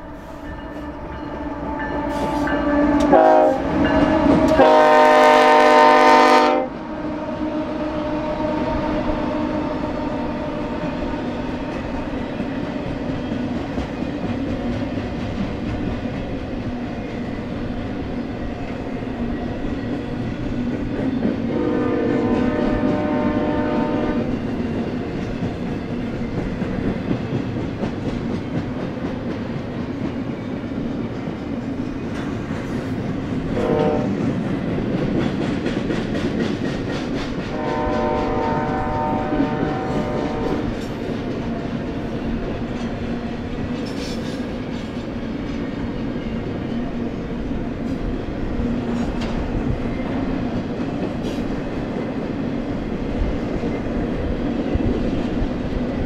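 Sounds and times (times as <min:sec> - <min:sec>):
locomotive air horn blasts: 0:00.0 - 0:11.2, 0:21.5 - 0:24.3, 0:33.6 - 0:34.2, 0:37.5 - 0:40.8
freight train wheel clatter: 0:10.9 - 0:56.0.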